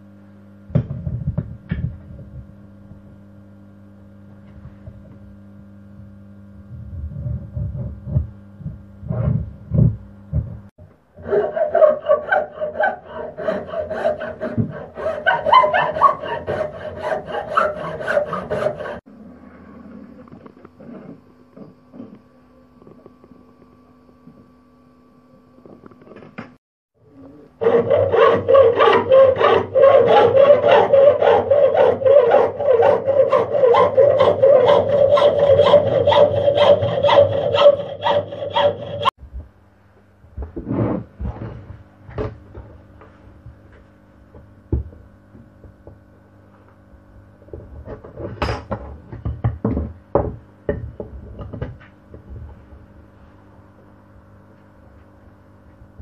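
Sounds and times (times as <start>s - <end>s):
hand saw cutting wood: 11.2s - 19.1s, 27.6s - 39.1s.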